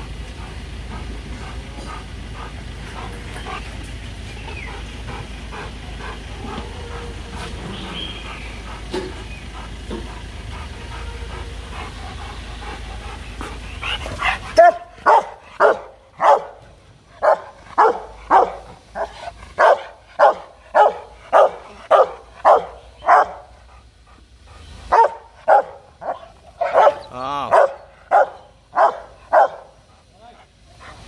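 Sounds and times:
low steady rumble: 0:00.0 - 0:31.0
dog barking aggressively: 0:13.8 - 0:23.6, 0:24.9 - 0:29.8.

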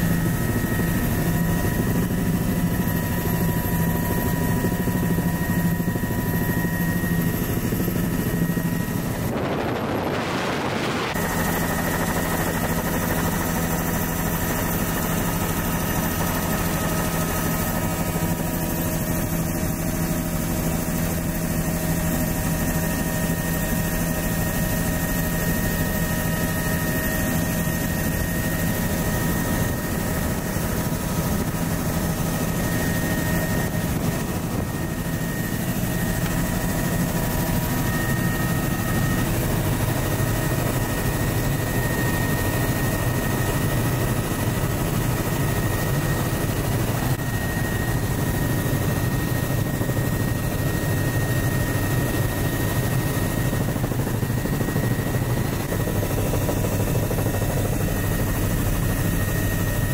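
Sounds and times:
helicopter engine and rotor drone: 0:00.0 - 0:59.9
rushing air: 0:09.1 - 0:11.2.

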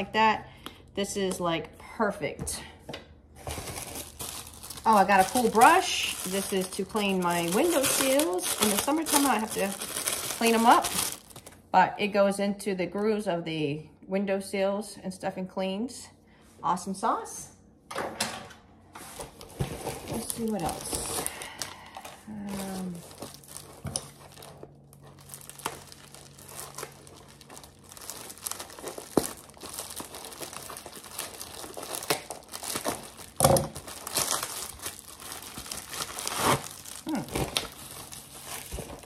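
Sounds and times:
bubble wrap crinkling and tearing: 0:03.4 - 0:11.6, 0:19.2 - 0:39.0.

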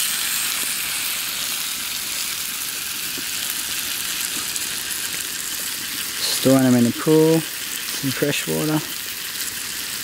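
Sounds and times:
water boiling in a pot: 0:00.0 - 0:10.0.

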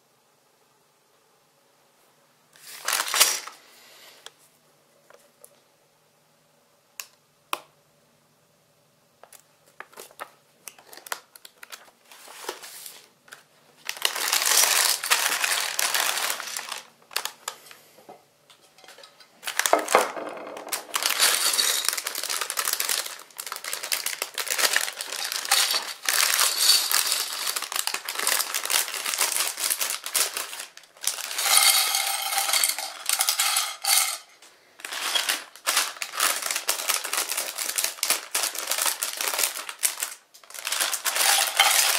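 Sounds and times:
plastic bags crinkling and tearing: 0:02.6 - 0:03.6, 0:09.3 - 0:17.8, 0:19.4 - 0:34.1, 0:34.8 - 0:41.9
plastic bricks clattering onto plate: 0:13.9 - 0:17.6, 0:18.8 - 0:41.9.

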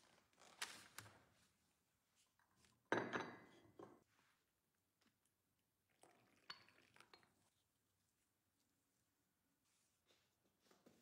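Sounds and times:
tea pouring into cup: 0:05.8 - 0:07.9.

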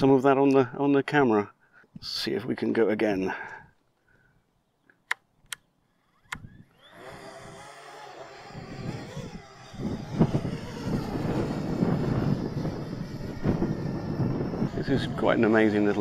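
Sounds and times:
short sharp clicks: 0:05.1 - 0:06.5
drone motors whining: 0:05.9 - 0:16.0
wind buffeting microphone: 0:06.2 - 0:16.0.

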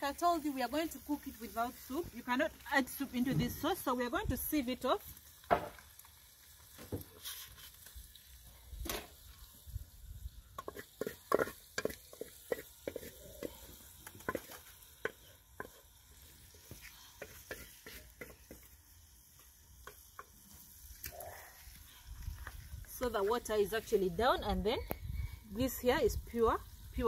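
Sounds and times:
wooden spoon scraping metal pot: 0:10.6 - 0:18.8.

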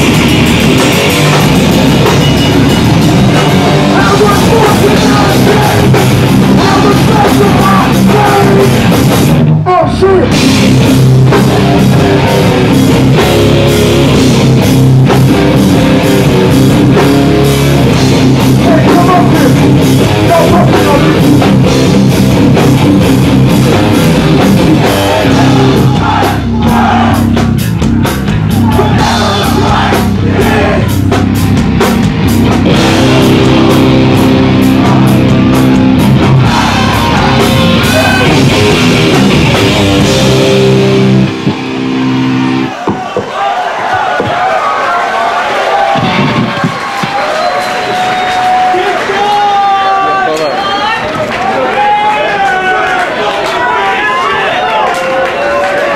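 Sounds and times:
distorted electric guitars: 0:00.0 - 0:42.8, 0:45.7 - 0:48.8
heavy rock band playing live: 0:00.0 - 0:43.0, 0:45.8 - 0:47.3
pounding drum kit: 0:00.0 - 0:44.7, 0:45.4 - 0:50.1
person singing: 0:03.9 - 0:08.8.

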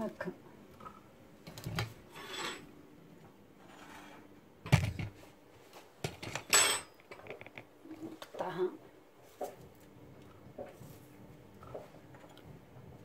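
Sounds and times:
utensil scrape: 0:02.1 - 0:02.7, 0:03.6 - 0:04.3.

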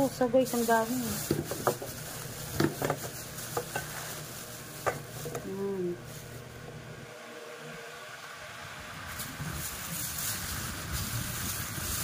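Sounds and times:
plastic bag rustling: 0:00.0 - 0:06.6, 0:09.1 - 0:12.0
fruits knocking in metal bowl: 0:01.2 - 0:03.9.

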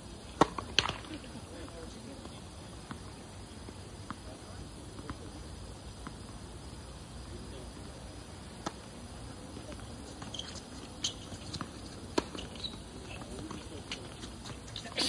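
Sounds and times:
tennis ball bouncing: 0:00.3 - 0:04.2, 0:08.6 - 0:08.8, 0:09.6 - 0:14.9
racket striking tennis ball: 0:00.4 - 0:01.1.

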